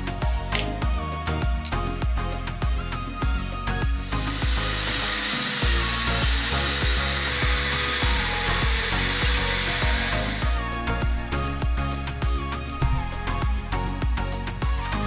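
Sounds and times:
background music: 0.0s - 15.0s
mini drill whining into metal: 4.0s - 13.5s.

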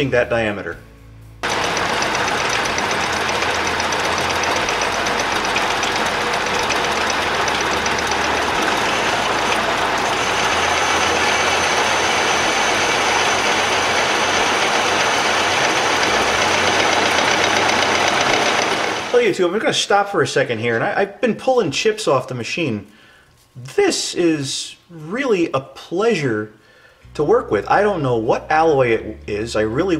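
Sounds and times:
metal lathe running: 1.4s - 19.2s.

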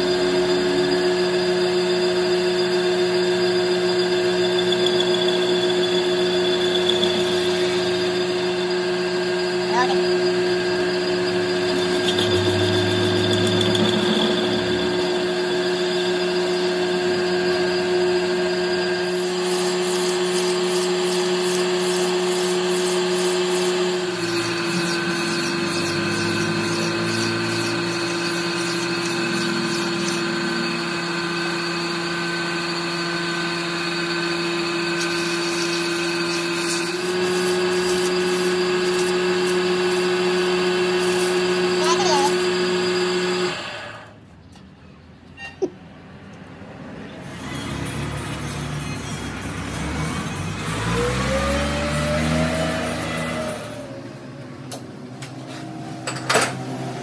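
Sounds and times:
metal lathe running: 0.0s - 44.2s.

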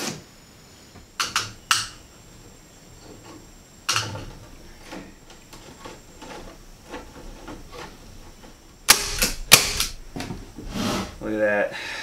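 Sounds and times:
knocks and clatters of handling: 3.0s - 10.6s.

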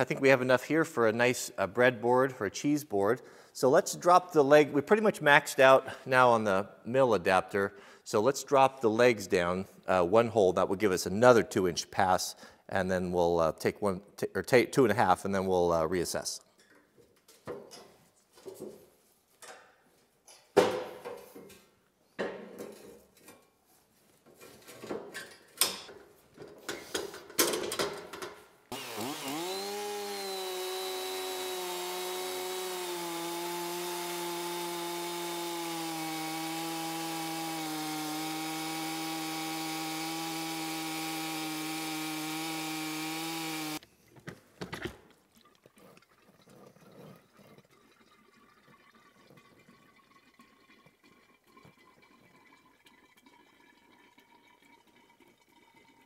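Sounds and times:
chainsaw cutting wood: 28.7s - 43.8s.

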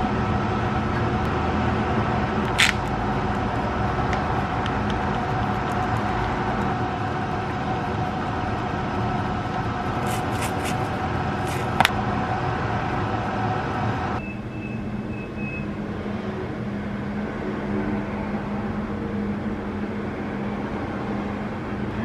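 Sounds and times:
kitchen fan humming: 1.2s - 14.2s
seasoning shaker ticks: 4.1s - 6.8s, 8.5s - 11.7s.

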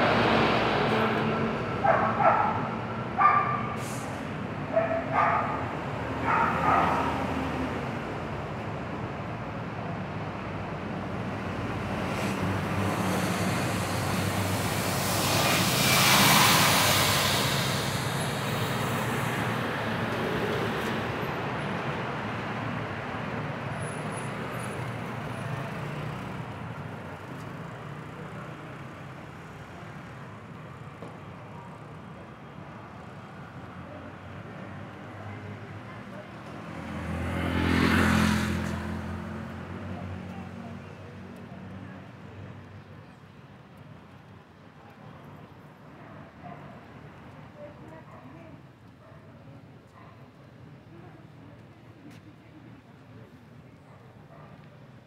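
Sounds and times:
cars going by: 0.0s - 43.2s
vehicle passing close: 11.8s - 19.8s, 36.6s - 40.7s.

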